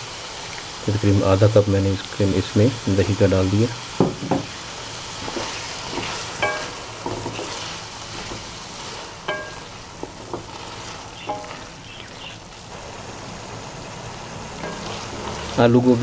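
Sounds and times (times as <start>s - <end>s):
vegetables sizzling in a wok: 0.0s - 16.0s
spatula scraping a pan: 5.2s - 12.3s, 14.6s - 15.5s
pan ringing from spatula knocks: 9.3s - 9.7s.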